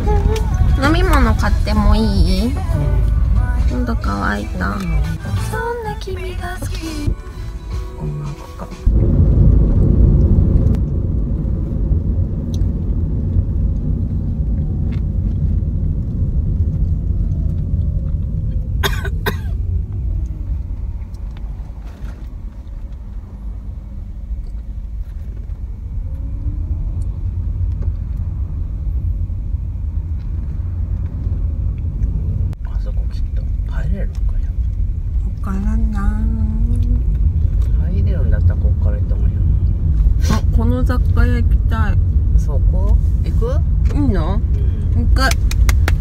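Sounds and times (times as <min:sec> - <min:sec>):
engine and road rumble: 0:00.0 - 0:46.0.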